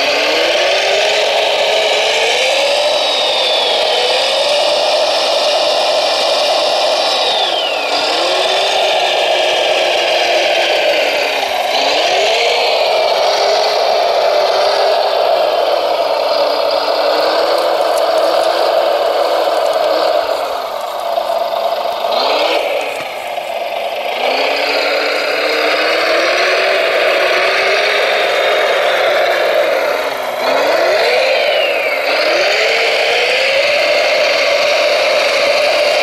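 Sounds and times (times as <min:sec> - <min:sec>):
toy loader motors whining: 0:00.0 - 0:36.0
gravel rattling: 0:04.7 - 0:32.2.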